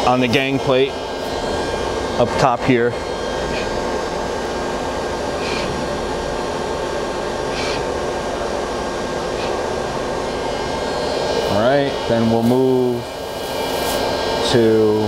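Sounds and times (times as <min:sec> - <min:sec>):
lathe whirring hum: 0:00.0 - 0:15.0
short higher-pitched whirs: 0:00.6 - 0:04.3, 0:05.4 - 0:06.5.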